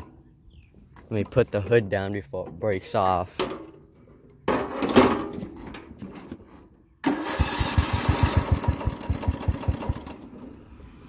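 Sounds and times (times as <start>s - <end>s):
electric starter cranking engine: 7.0s - 10.3s.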